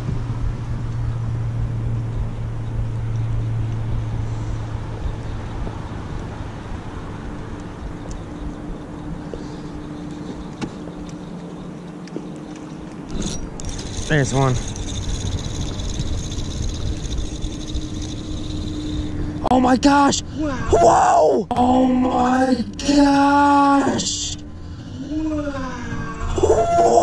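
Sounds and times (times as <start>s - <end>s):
water and wind noise: 0.0s - 20.0s
boat motor humming: 0.0s - 20.9s, 21.6s - 27.0s
higher steady hum: 0.0s - 27.0s.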